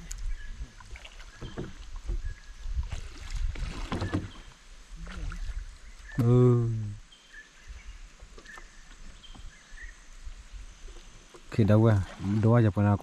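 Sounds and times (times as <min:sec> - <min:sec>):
water splashing and dripping: 0:00.0 - 0:06.5.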